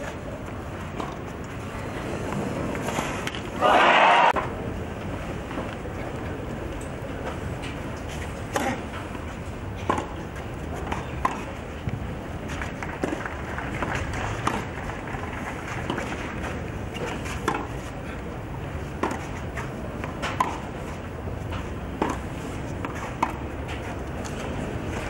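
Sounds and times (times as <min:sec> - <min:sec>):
background murmur: 0:00.0 - 0:25.0
tennis ball hit by rackets: 0:08.5 - 0:09.0, 0:09.8 - 0:10.2, 0:10.8 - 0:11.6, 0:12.8 - 0:14.9, 0:16.9 - 0:17.8, 0:19.0 - 0:24.4.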